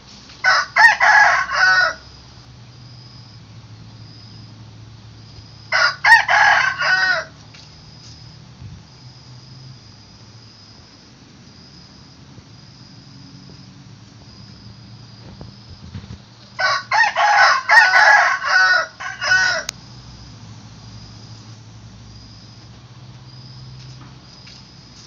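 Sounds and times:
rooster crowing: 0.4 - 2.2, 5.6 - 7.4, 16.5 - 19.8.

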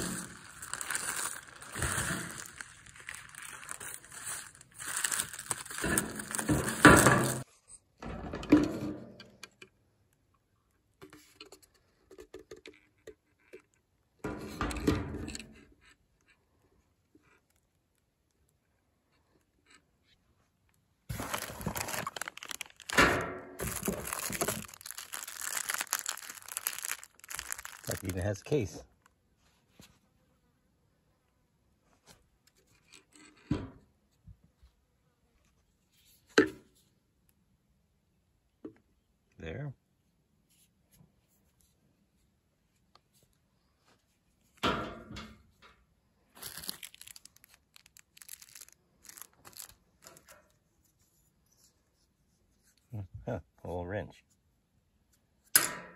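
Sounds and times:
packaging rustling: 0.0 - 7.4, 21.1 - 28.4, 46.4 - 50.5
plastic wrap crinkling: 0.0 - 7.4, 21.1 - 28.4, 46.3 - 50.6
plastic parts knocking: 21.1 - 28.1.

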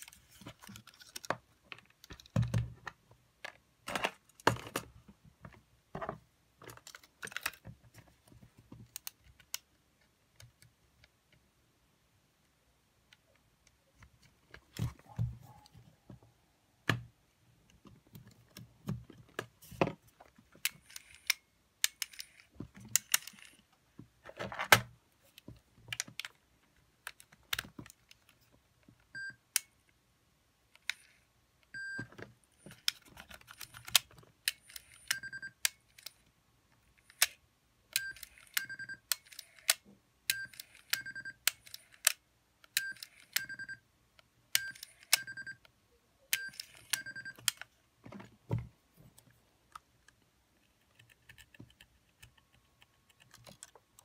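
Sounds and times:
hands and tools clicking and tapping: 0.0 - 11.5, 46.4 - 54.0.

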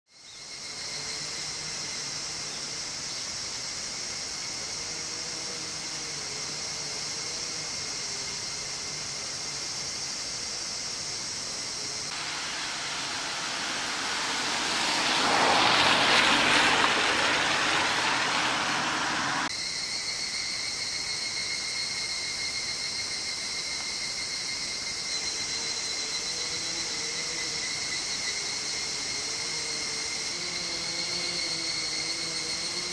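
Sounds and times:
cicadas buzzing: 0.1 - 32.9
broad rushing noise: 12.1 - 19.5.

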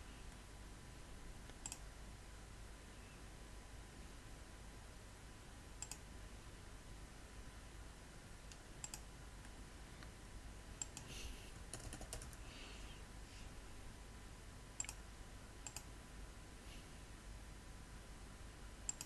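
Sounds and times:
computer mouse clicks: 1.5 - 1.9, 5.8 - 6.1, 8.5 - 10.1, 10.8 - 12.4, 14.8 - 15.0, 15.6 - 15.9
keyboard typing: 1.5 - 1.9, 5.8 - 6.0, 8.5 - 9.1, 10.8 - 12.4, 14.8 - 15.0, 15.6 - 15.9.

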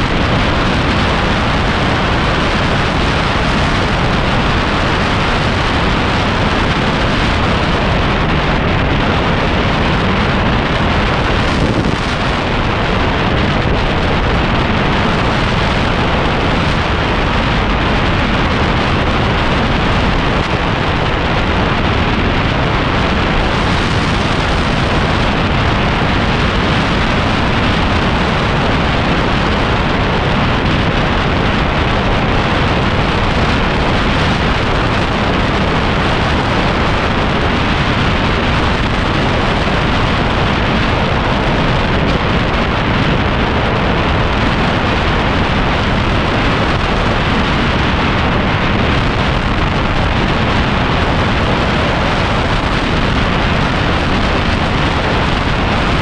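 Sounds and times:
road noise: 0.0 - 56.0
wind buffeting microphone: 0.0 - 56.0.

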